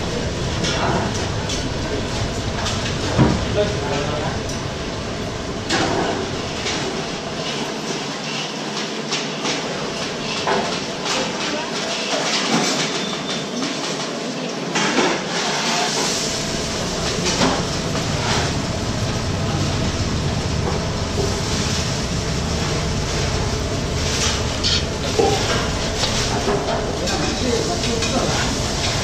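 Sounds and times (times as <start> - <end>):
low rumbling noise: 0.0 - 7.8, 16.0 - 29.0.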